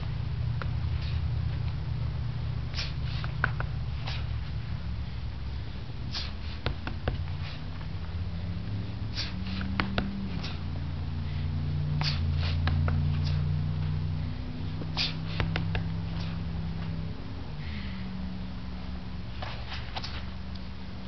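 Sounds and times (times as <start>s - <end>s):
low drone: 0.0s - 21.0s
sharp exhalations: 2.6s - 6.7s, 7.3s - 13.6s, 14.2s - 16.6s, 17.5s - 18.2s.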